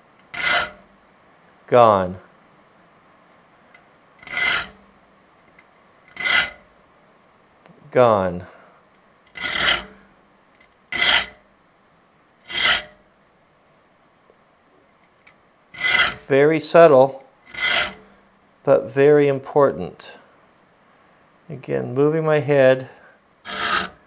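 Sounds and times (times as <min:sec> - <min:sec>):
file rasping on saw teeth: 0:00.3 - 0:00.9, 0:04.2 - 0:04.8, 0:06.1 - 0:06.6, 0:09.3 - 0:10.0, 0:10.9 - 0:11.4, 0:12.5 - 0:13.0, 0:15.8 - 0:16.3, 0:17.5 - 0:18.0, 0:23.5 - 0:24.0.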